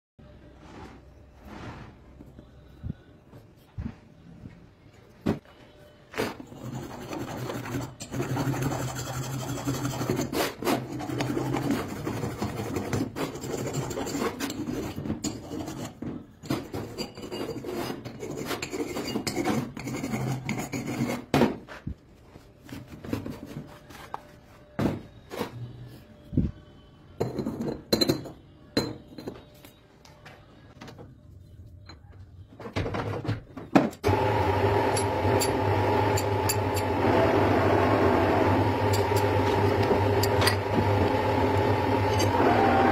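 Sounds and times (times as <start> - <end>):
hand file rasping on metal: 6.6 - 16.0
metal lathe humming: 34.0 - 42.9.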